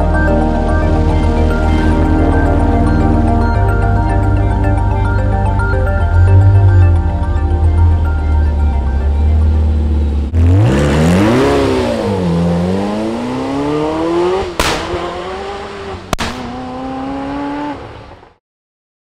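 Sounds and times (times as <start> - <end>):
car engine revving: 0.0 - 18.3
sharp cracks: 14.6 - 15.5, 16.1 - 16.8.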